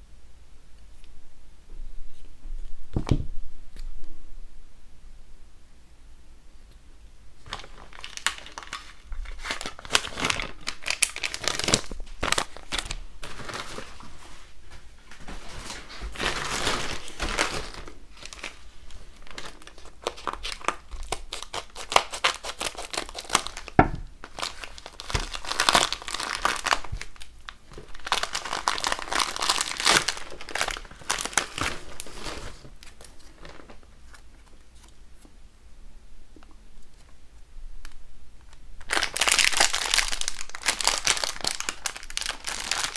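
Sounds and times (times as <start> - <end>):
plastic bag tearing: 7.4 - 14.2, 15.3 - 34.2, 38.8 - 42.9
plastic packaging rustling: 7.4 - 35.0, 38.4 - 42.9.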